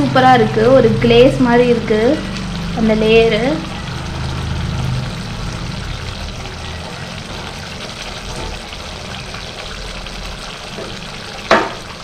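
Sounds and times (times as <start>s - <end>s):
thick gravy bubbling and sizzling: 0.0s - 12.0s.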